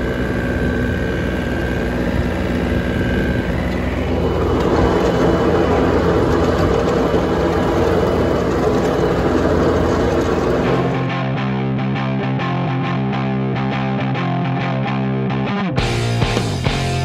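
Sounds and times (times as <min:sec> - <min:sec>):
mower blades cutting grass: 0:00.0 - 0:11.3
tractor diesel engine running: 0:00.0 - 0:11.5.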